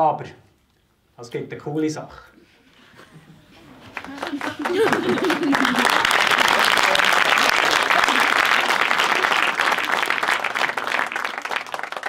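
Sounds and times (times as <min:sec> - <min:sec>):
applause: 0:03.8 - 0:12.0.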